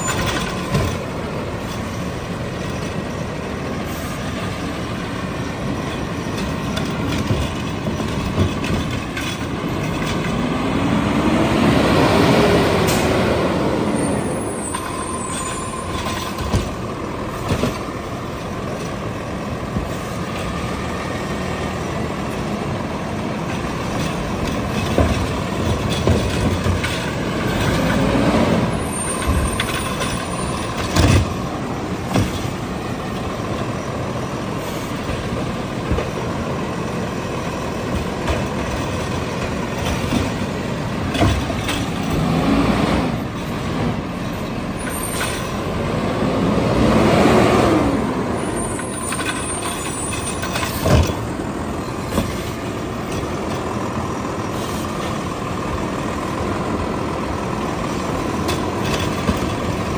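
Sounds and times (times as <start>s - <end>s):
diesel engine revving: 0.0s - 59.9s
carts knocking on metal: 23.4s - 28.1s, 28.8s - 33.2s.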